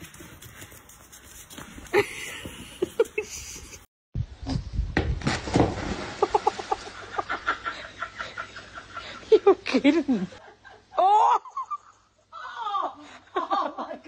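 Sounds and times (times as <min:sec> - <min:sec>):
water splashing in pool: 0:05.2 - 0:07.4.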